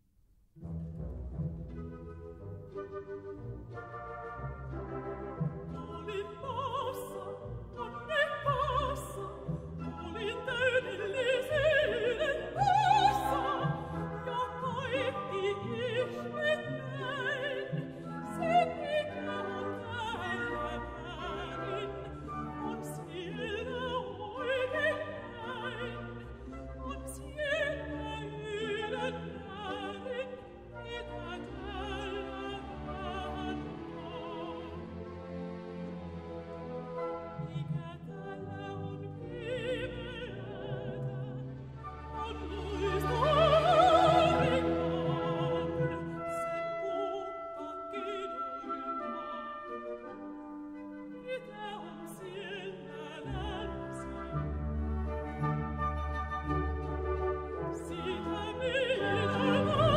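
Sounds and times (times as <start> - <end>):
symphony orchestra strings: 0.6 - 59.9
woman singing with vibrato: 5.8 - 34.8, 37.4 - 49.7, 51.2 - 54.4, 57.7 - 59.9.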